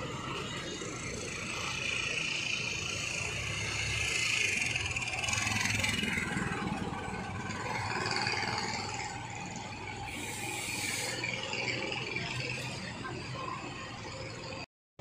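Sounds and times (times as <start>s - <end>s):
motor vehicle passing: 2.4s - 13.1s.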